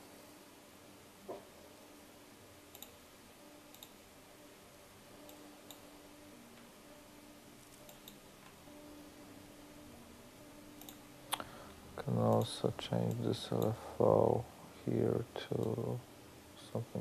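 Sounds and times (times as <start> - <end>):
faint low hum: 0.0 - 17.0
computer mouse clicks: 2.7 - 3.0, 3.7 - 4.0, 7.6 - 8.2, 10.8 - 11.5, 12.3 - 13.8.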